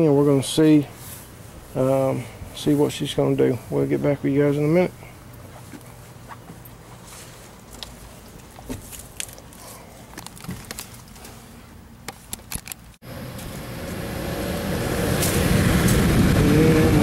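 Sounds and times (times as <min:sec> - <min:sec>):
fan motor running: 0:00.0 - 0:17.0.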